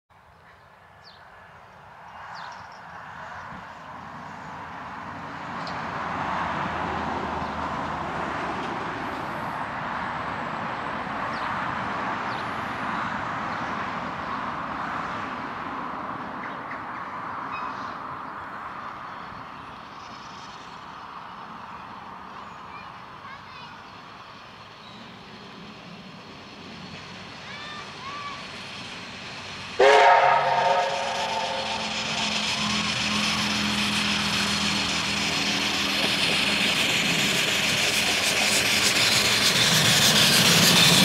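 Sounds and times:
distant steam locomotive exhaust: 26.9s - 41.0s.

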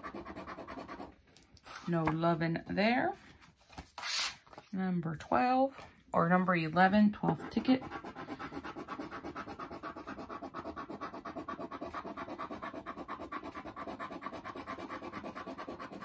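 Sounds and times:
scratch-off ticket being rubbed: 0.0s - 1.1s, 7.4s - 16.0s.

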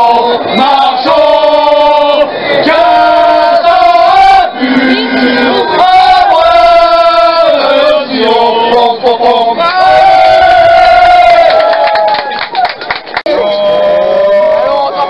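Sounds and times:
football fans singing in unison: 0.0s - 11.6s.

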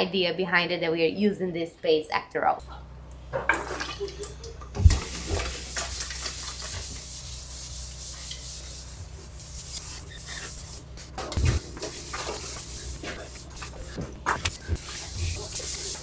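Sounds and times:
low steady hum: 2.6s - 16.0s
cloth rubbing on wood: 5.3s - 16.0s.

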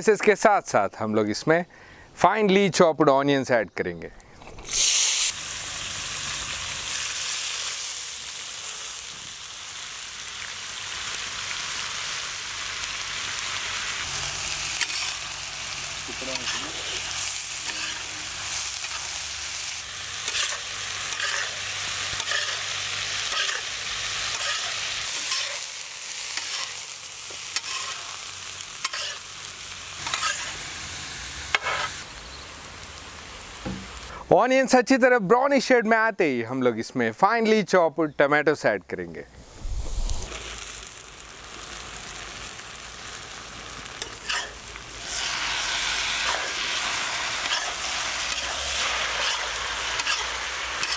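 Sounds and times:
onions sizzling in oil: 4.6s - 34.1s, 39.4s - 50.9s
spatula scraping griddle: 14.0s - 15.2s, 16.2s - 19.1s, 20.2s - 28.1s, 28.8s - 29.2s, 30.0s - 30.6s, 31.5s - 32.0s, 44.0s - 50.9s.

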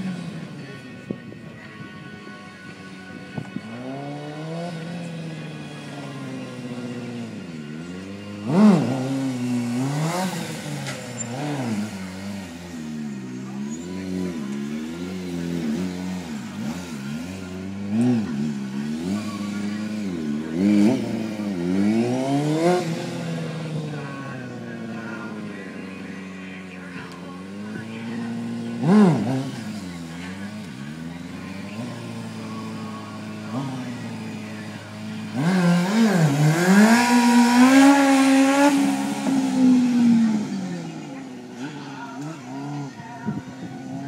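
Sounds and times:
motorcycle engine revving: 0.0s - 44.0s.

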